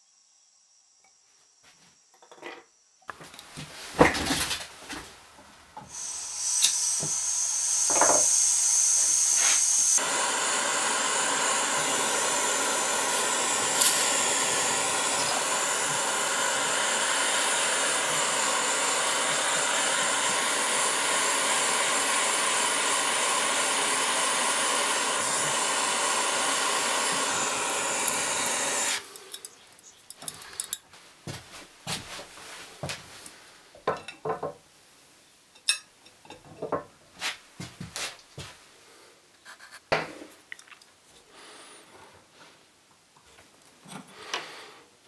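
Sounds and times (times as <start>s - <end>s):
gas torch flame rushing: 5.8s - 29.4s
high hiss: 5.8s - 29.8s.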